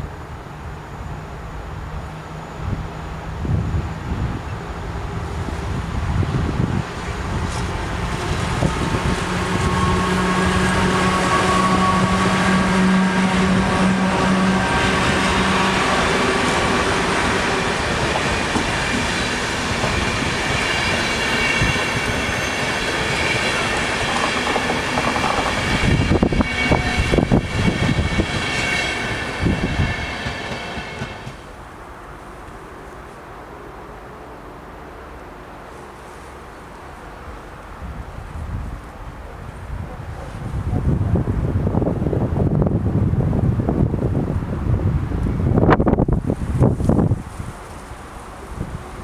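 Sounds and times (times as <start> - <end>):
train wheels rushing on track: 0.0 - 49.0
high whining wheel tones: 8.4 - 31.0.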